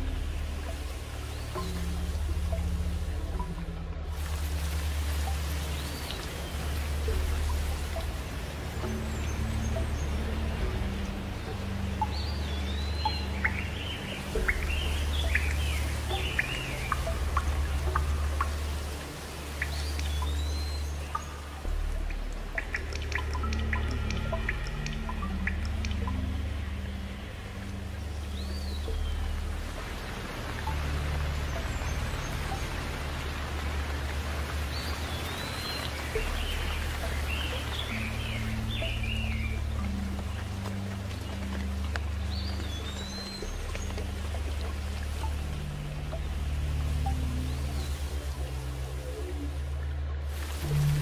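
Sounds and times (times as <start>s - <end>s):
drops plinking: 0.0s - 4.2s, 6.0s - 29.9s
low rumble: 0.0s - 51.0s
steady rain: 0.0s - 51.0s
bird chirping: 11.4s - 18.6s.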